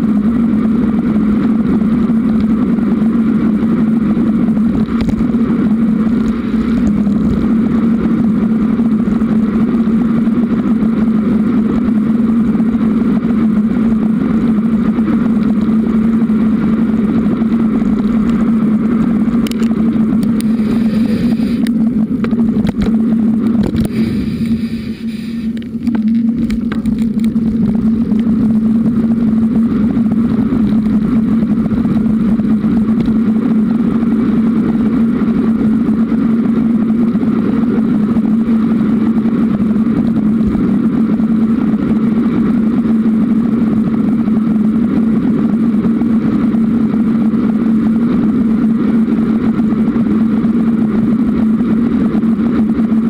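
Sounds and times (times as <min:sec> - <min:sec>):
bicycle riding hum with rattle: 0:00.0 - 0:53.0.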